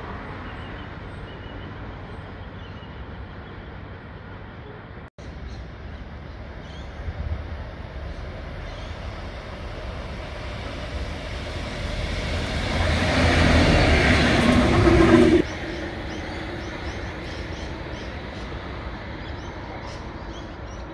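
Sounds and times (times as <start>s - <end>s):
diesel locomotives passing: 0.0s - 20.9s.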